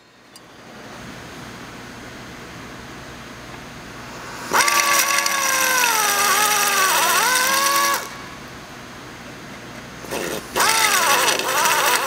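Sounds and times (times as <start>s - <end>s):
drill motor whine: 4.2s - 8.2s, 10.0s - 12.0s.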